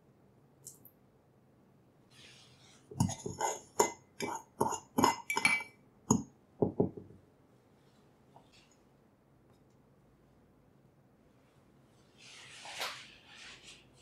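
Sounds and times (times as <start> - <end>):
spoon clinking in ceramic mug: 3.0 - 6.2.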